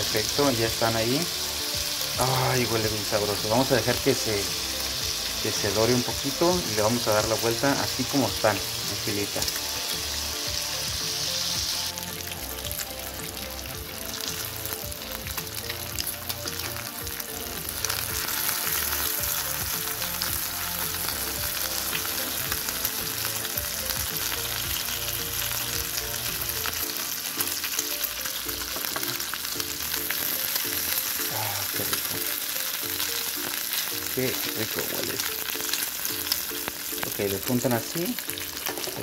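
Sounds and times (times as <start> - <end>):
bacon sizzling in a frying pan: 0.0 - 39.0.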